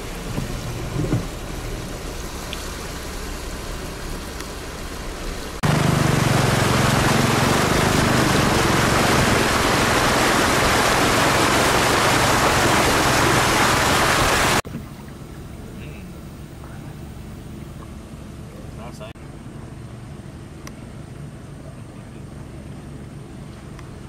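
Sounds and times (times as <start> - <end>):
floodwater rushing and splashing: 0.0 - 19.1.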